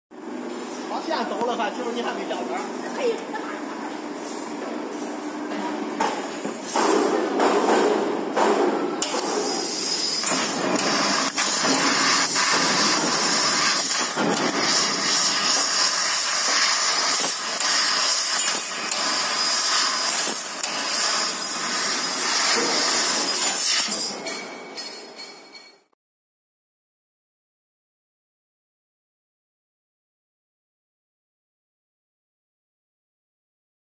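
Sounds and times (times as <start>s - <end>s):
laser cutting head hissing: 9.0s - 24.0s.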